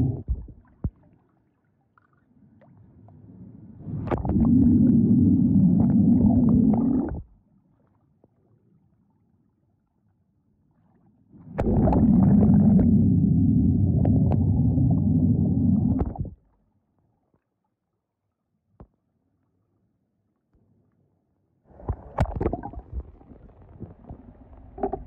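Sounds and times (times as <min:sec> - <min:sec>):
muffled water sloshing: 0:11.4 - 0:16.4.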